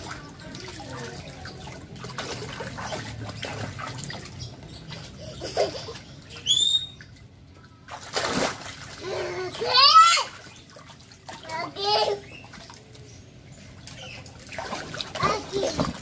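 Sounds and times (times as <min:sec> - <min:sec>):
water splashing in paddling pool: 0:00.0 - 0:16.0
child squealing: 0:09.0 - 0:10.4.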